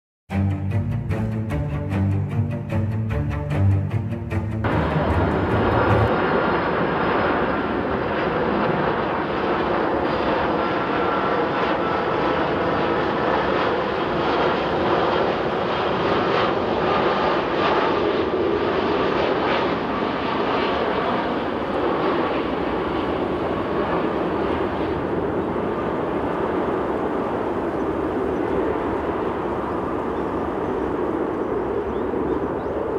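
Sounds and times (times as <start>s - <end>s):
jet airliner rumble with whine: 4.6s - 32.9s.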